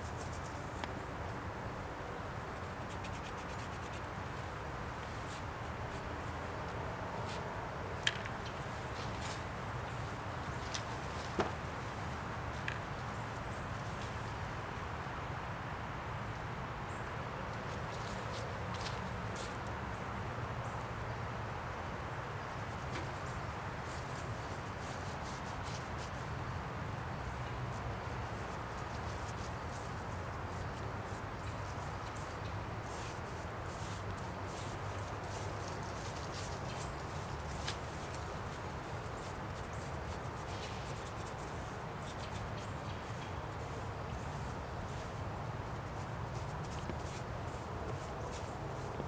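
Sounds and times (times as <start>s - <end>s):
outdoor background hum: 0.0s - 49.0s
paintbrush scraping on wood: 2.8s - 4.1s, 30.5s - 49.0s.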